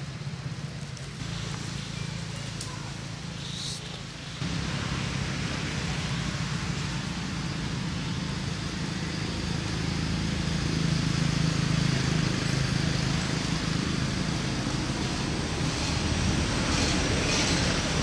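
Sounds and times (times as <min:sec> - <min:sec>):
hiss: 0:01.2 - 0:08.9.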